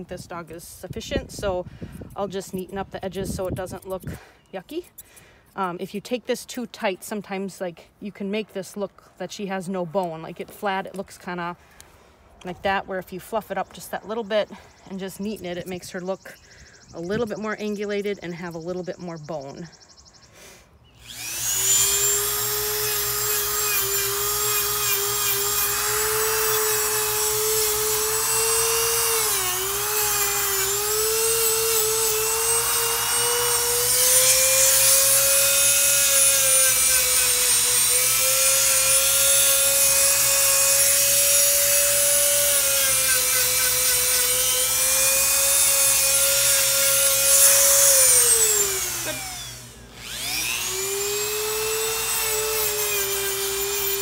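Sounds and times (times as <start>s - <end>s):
nail grinder motor whine: 21.0s - 54.0s.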